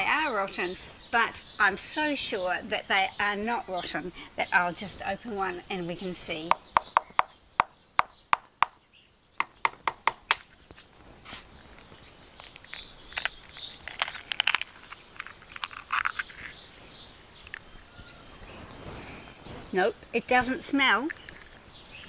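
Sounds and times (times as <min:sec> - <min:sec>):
eggshell crackling: 0:11.6 - 0:17.8, 0:18.4 - 0:22.0.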